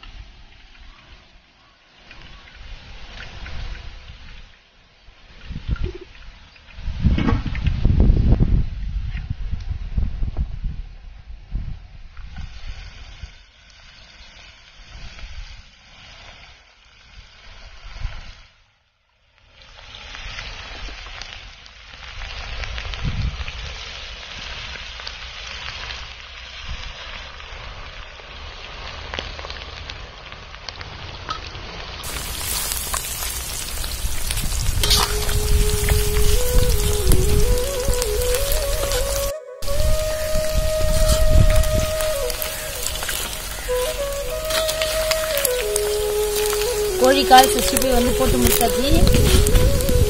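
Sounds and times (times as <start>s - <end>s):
food frying in hot oil: 12.2s - 18.6s, 19.3s - 50.0s.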